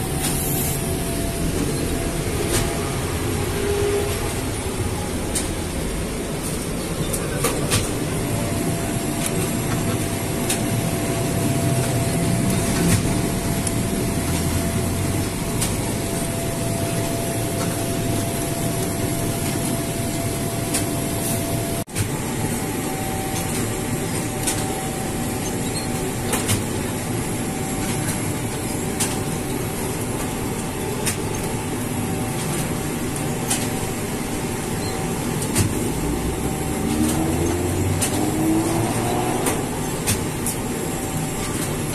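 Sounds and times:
faint steady machine whine: 0.0s - 41.9s
dough-sheeting machine rumbling: 27.8s - 41.9s.

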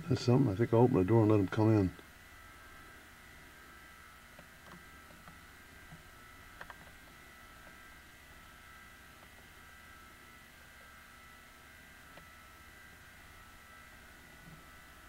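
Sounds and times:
camcorder hum and hiss: 0.0s - 15.0s.

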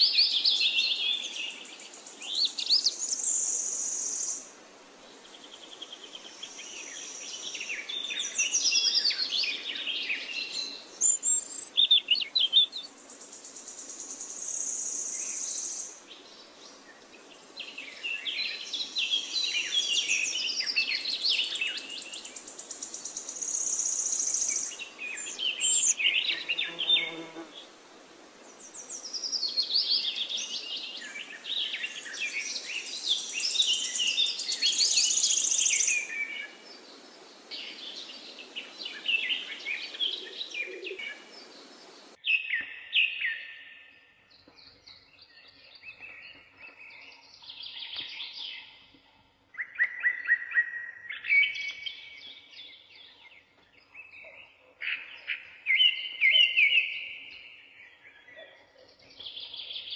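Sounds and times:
birds twittering: 28.4s - 59.9s.

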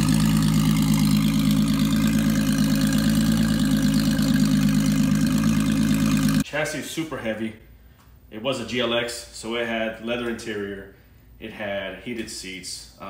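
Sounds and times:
car engine idling: 0.0s - 6.4s.

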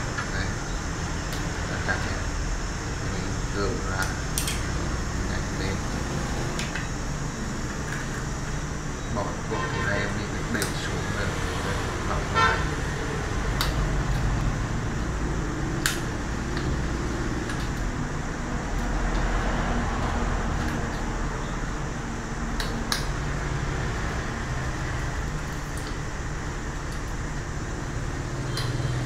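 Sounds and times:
street traffic rumble: 0.0s - 29.0s
vehicle horn toot: 9.5s - 10.2s, 12.3s - 12.8s.

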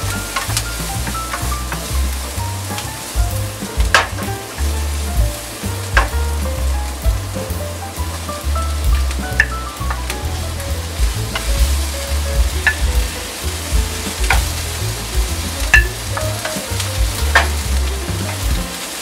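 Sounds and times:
wooden spatula clicking and scraping: 0.0s - 6.2s, 8.8s - 19.0s
background music: 0.0s - 19.0s
vegetables sizzling in oil: 0.0s - 19.0s.

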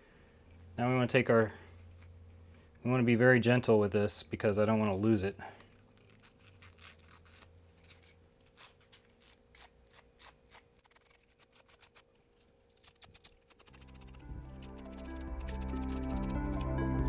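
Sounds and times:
fingers clicking and scraping wires: 6.0s - 16.7s
background music: 13.7s - 17.0s.

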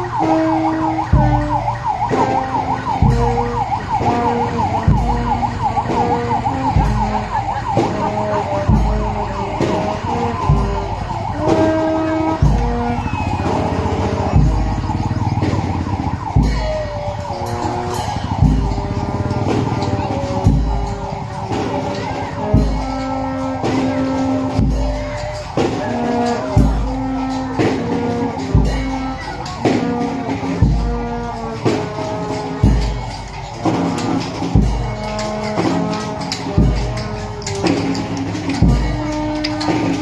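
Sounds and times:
siren warbling: 0.0s - 31.0s
deep drum beat: 0.0s - 40.0s
slow procession music: 0.0s - 40.0s.

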